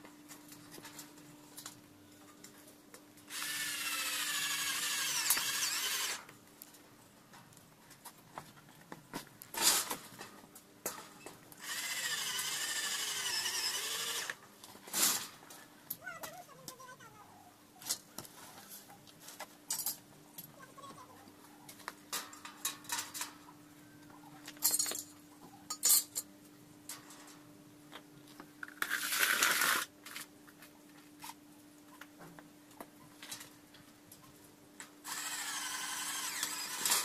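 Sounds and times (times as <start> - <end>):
power drill burst: 3.3 - 6.2, 11.6 - 14.4, 35.1 - 37.0.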